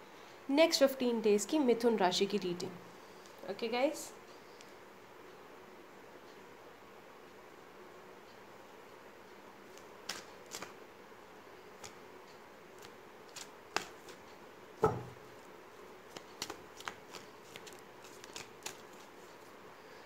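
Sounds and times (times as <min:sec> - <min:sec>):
cards being shuffled and handled: 0:09.7 - 0:10.8, 0:11.8 - 0:12.0, 0:12.8 - 0:14.2, 0:16.1 - 0:19.5
knock: 0:14.8 - 0:15.2.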